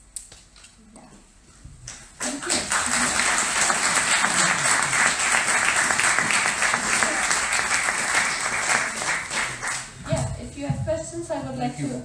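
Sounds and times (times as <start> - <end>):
audience applauding: 2.2 - 10.0.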